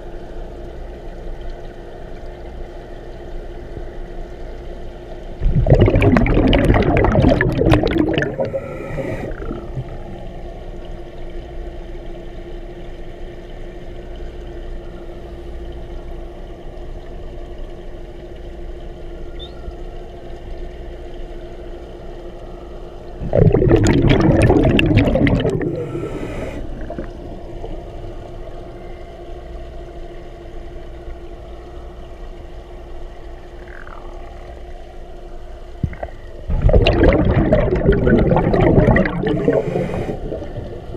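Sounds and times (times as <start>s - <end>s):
low underwater hum: 0.0s - 40.9s
underwater exhaled bubbles: 5.3s - 12.0s, 23.0s - 40.9s.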